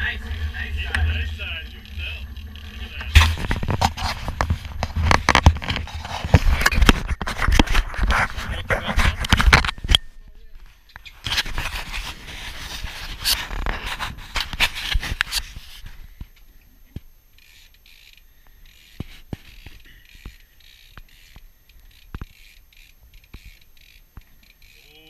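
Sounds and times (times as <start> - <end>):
hand rubbing camera body: 2.0 - 9.8, 11.3 - 16.0.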